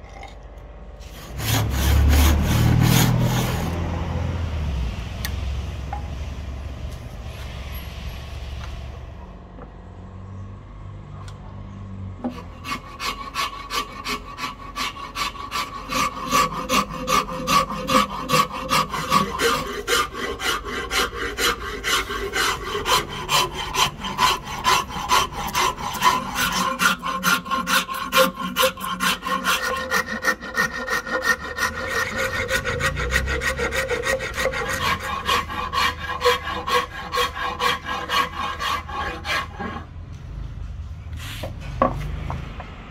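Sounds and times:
hand file rasping wood: 0:01.0 - 0:03.8, 0:12.3 - 0:39.9.

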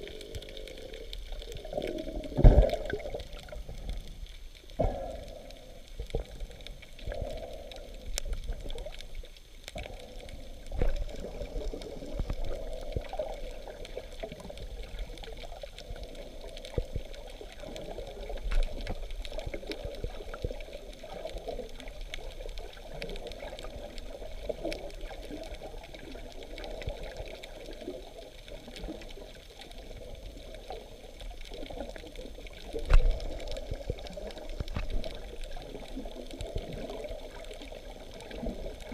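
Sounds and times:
water sloshing and gurgling: 0:00.0 - 0:38.9
small clicks: 0:05.4 - 0:29.8.

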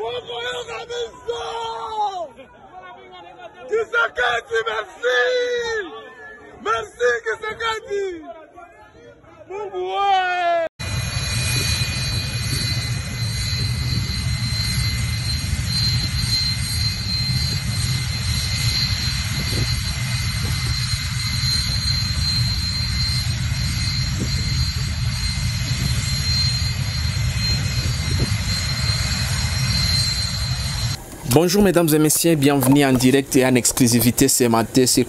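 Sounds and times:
jet engines running: 0:10.8 - 0:35.0.

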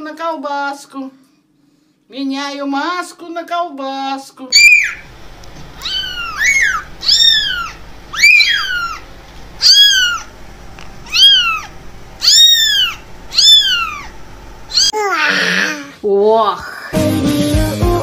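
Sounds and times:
kittens mewing: 0:04.6 - 0:05.1, 0:05.7 - 0:16.0.

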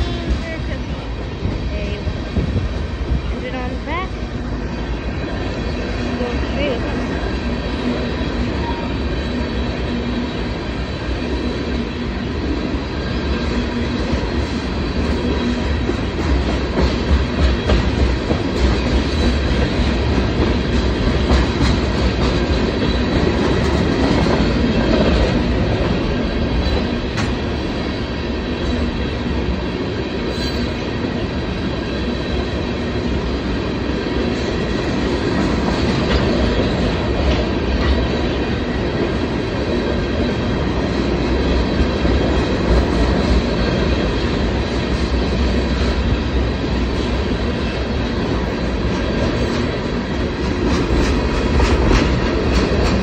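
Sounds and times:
train wheels rumbling on rail: 0:00.0 - 0:53.0.

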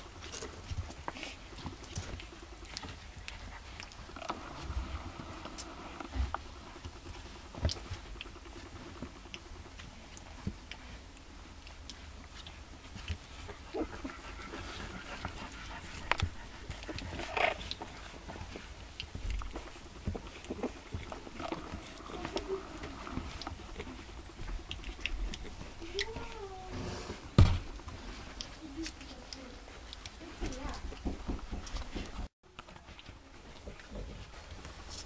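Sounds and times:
puppies squeaking and whimpering: 0:11.9 - 0:26.8.

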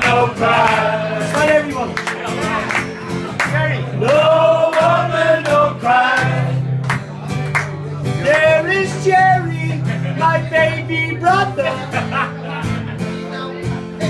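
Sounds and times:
man singing: 0:00.0 - 0:02.7, 0:03.8 - 0:06.6, 0:08.1 - 0:12.6
strummed acoustic guitar: 0:00.0 - 0:14.0.

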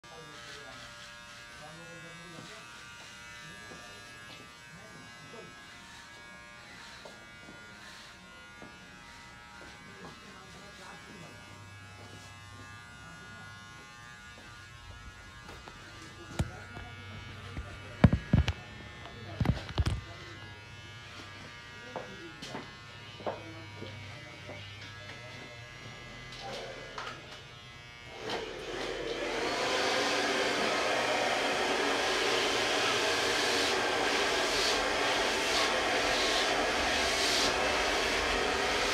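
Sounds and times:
small electric motor buzzing: 0:11.5 - 0:38.9
hair dryer blowing: 0:28.1 - 0:38.9.

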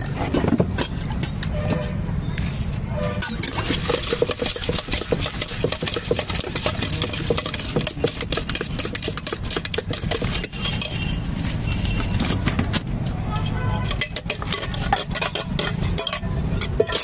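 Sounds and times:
spoon scraping steel bowl: 0:02.9 - 0:12.4, 0:13.3 - 0:17.0.

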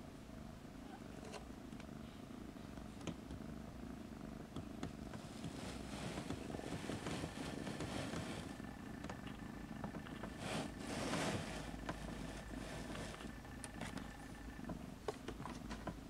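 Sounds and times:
cat purring: 0:00.0 - 0:16.0
rustle of fur and bedding: 0:05.2 - 0:08.9, 0:10.0 - 0:14.2.

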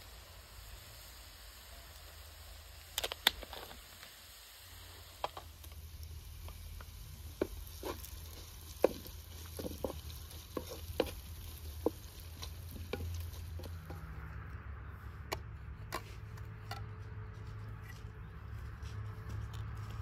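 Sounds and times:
vegetables frying in a pan: 0:00.0 - 0:14.2.

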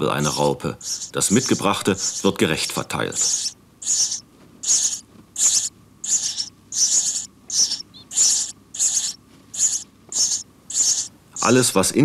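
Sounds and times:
nestlings begging calls: 0:00.0 - 0:12.0.

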